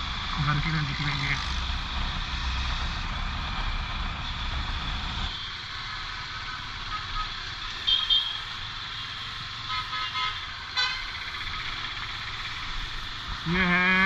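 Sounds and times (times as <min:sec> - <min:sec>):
motorcycle engine and road noise: 0:00.0 - 0:14.0
vehicle horns tooting: 0:06.9 - 0:08.5, 0:09.6 - 0:11.1.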